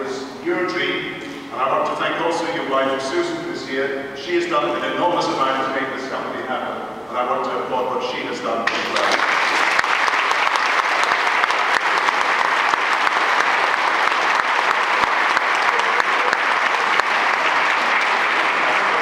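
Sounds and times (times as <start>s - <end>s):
people clapping: 8.6s - 19.0s.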